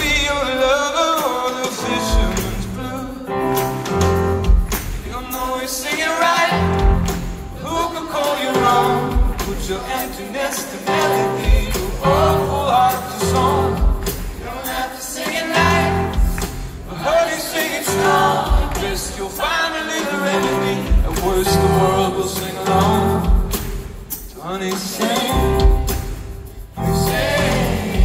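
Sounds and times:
man singing into microphone: 0.0s - 3.6s, 5.1s - 6.8s, 7.6s - 15.7s, 16.8s - 23.6s, 24.3s - 25.9s
live band music: 0.0s - 28.0s.

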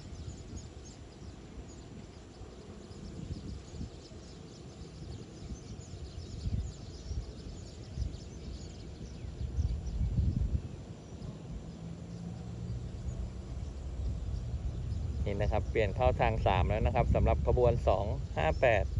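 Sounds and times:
faint bird chirps: 0.0s - 18.9s.

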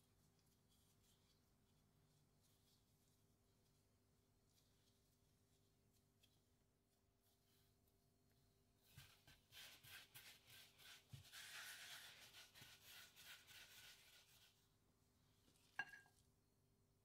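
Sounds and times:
hands rubbing together: 9.0s - 14.5s.

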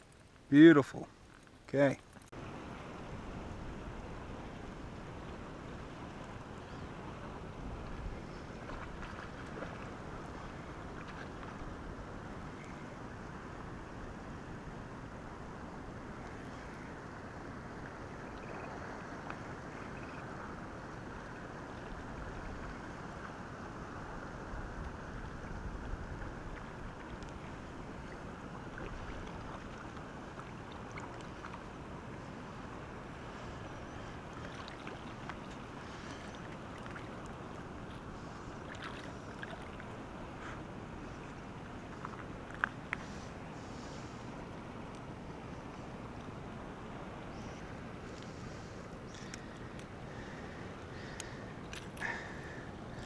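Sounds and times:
water lapping at shoreline: 0.0s - 53.0s
wind on microphone: 17.6s - 40.2s
faint ticks: 48.1s - 50.0s, 50.8s - 52.3s.

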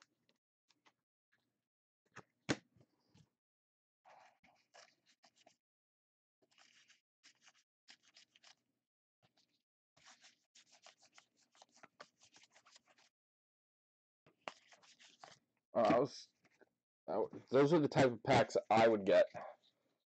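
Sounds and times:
cards being shuffled: 6.5s - 8.6s, 10.0s - 13.1s, 14.4s - 16.0s.

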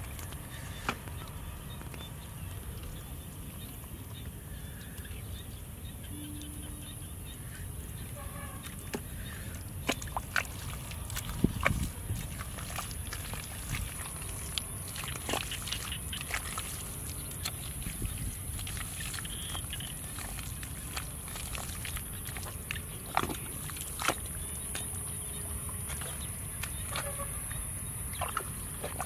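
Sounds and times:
hands squelching through wet mud: 0.0s - 29.0s
foot slapping into mud: 9.8s - 24.9s.

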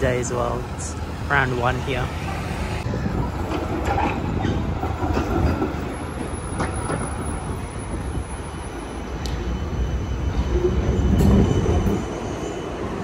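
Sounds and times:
tram wheels rumbling on rails: 0.0s - 13.0s
faint high-pitched squeal: 7.8s - 13.0s.

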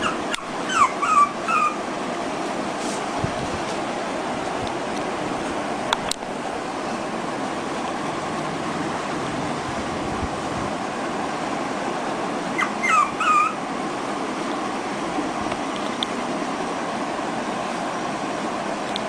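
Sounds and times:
puppy whimpering yips: 0.0s - 1.8s, 12.6s - 13.6s
steady background hiss: 0.0s - 19.0s.

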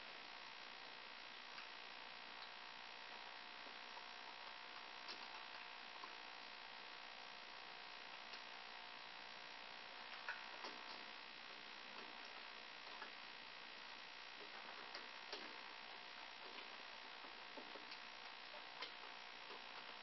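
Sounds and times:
microphone electrical hum and hiss: 0.0s - 20.0s.

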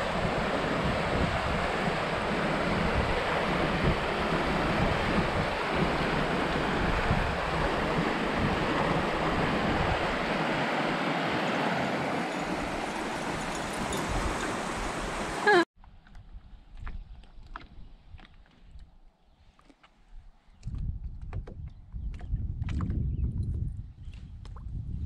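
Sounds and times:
wind gusting on microphone: 0.0s - 15.4s, 20.2s - 25.0s
river rapids rushing: 0.0s - 15.6s.

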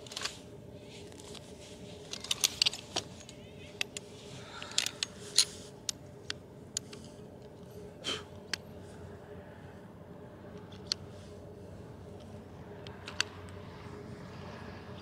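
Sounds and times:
gear clicks and metallic clinks: 0.0s - 8.7s, 12.0s - 15.0s
faint steady hum: 0.0s - 15.0s.

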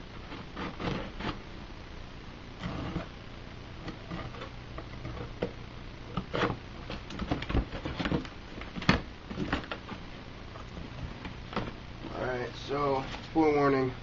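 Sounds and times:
cardboard and tape rustling: 3.8s - 13.8s.

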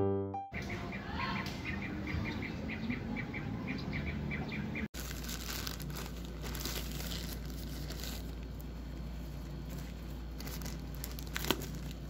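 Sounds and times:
small birds chirping: 0.6s - 4.9s
plastic bag crinkling: 5.0s - 12.0s.

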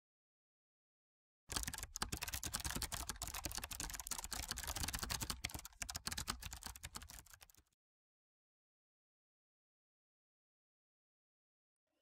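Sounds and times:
keyboard typing: 1.5s - 7.7s.

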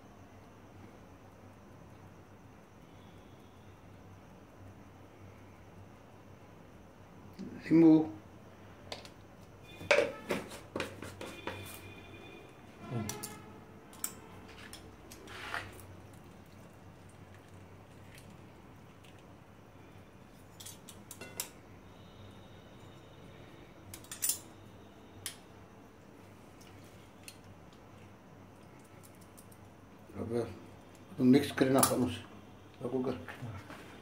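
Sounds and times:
metal utensils clinking: 13.1s - 14.8s, 23.9s - 24.5s.

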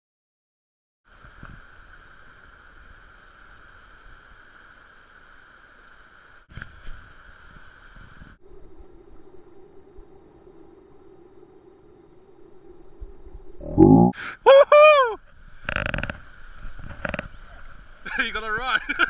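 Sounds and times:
wind rumbling on microphone: 6.5s - 14.2s, 15.2s - 18.2s.

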